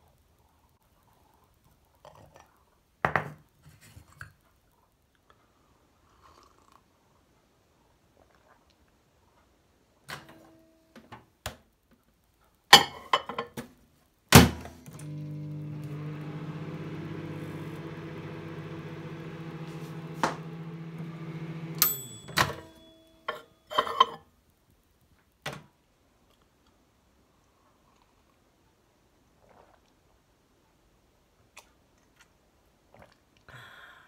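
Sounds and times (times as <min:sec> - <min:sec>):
clicks: 0:14.8 - 0:22.8
microwave oven humming: 0:14.8 - 0:23.2.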